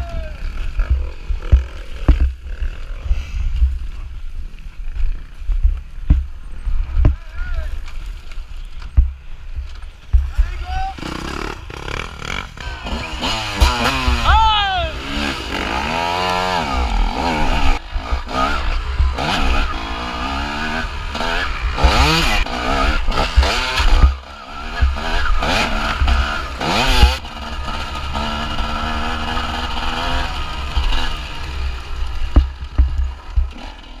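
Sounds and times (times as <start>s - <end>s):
motorcycle engine revving hard: 10.9s - 34.0s.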